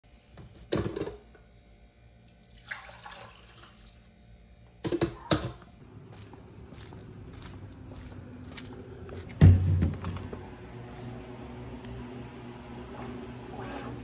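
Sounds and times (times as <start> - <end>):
coffee pouring into mug: 2.3 - 3.9.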